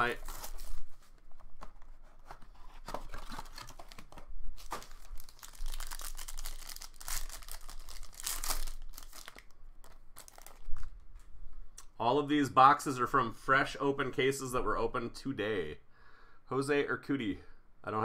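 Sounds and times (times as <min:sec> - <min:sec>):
card pack wrapper crinkling and tearing: 0:00.0 - 0:11.0.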